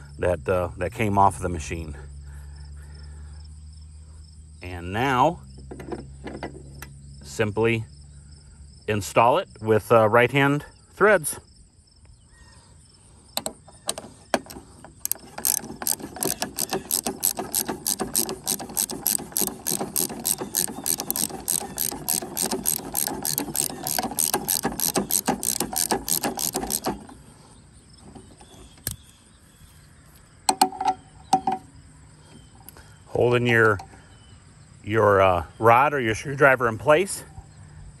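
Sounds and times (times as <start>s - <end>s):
socket ratchet clicking: 13.4s - 27.2s.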